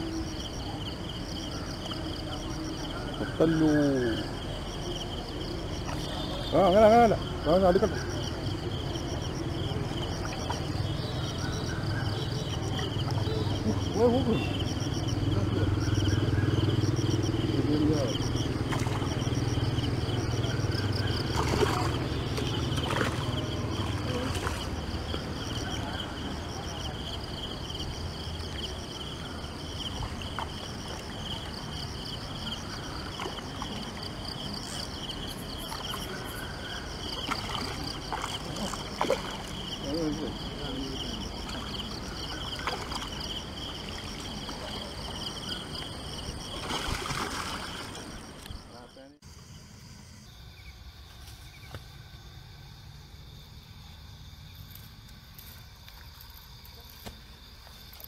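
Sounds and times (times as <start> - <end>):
insects chirping: 0.0 - 58.0
low engine-like hum: 8.3 - 26.8.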